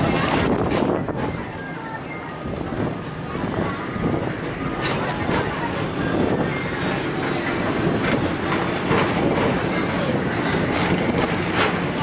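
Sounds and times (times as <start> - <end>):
ride car rolling rumble: 0.0 - 12.0
sharp clicks and knocks: 10.7 - 12.0.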